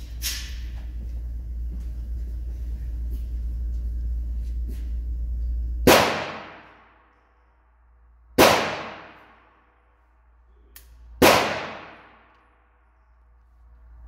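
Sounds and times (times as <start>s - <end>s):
revolver shots with echo: 5.8s - 7.0s, 8.4s - 9.6s, 11.2s - 12.3s.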